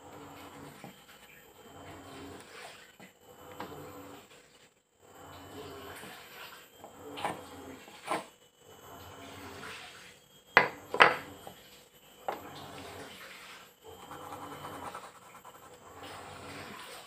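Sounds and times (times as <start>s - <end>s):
pencil scratching on wood: 14.0s - 16.7s.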